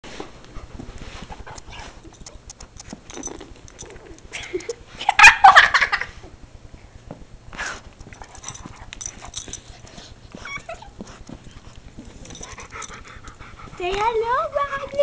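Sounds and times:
dog licking and snuffling: 0.5s - 4.3s
small dog whining and yipping: 10.3s - 11.1s.

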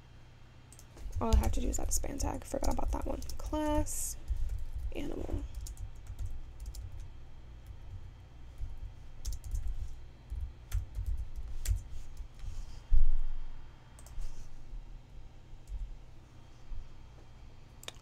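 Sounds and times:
keyboard keys clicking: 2.6s - 3.5s, 5.5s - 7.8s, 9.2s - 11.8s.

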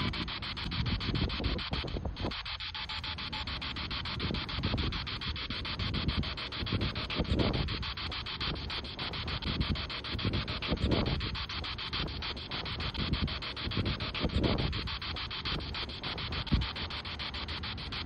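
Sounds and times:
wind gusts on microphone: 0.0s - 2.4s, 5.7s - 8.6s, 9.2s - 11.4s, 12.9s - 14.9s
rapid even clicks: 0.0s - 18.0s
recorder hiss: 0.0s - 18.0s.

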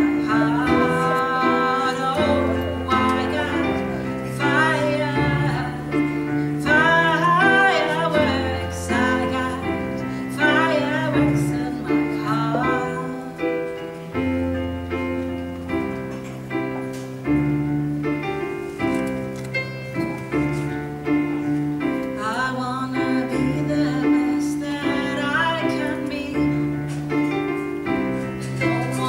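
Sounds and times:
woman singing into microphone: 0.0s - 13.8s, 22.2s - 27.0s, 28.4s - 29.0s
keyboard piano chords: 0.0s - 29.0s.

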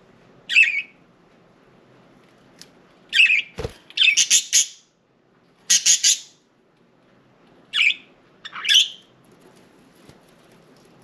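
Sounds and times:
budgerigars chirping and squawking: 0.5s - 0.9s, 3.1s - 4.8s, 5.7s - 6.4s, 7.7s - 9.1s.

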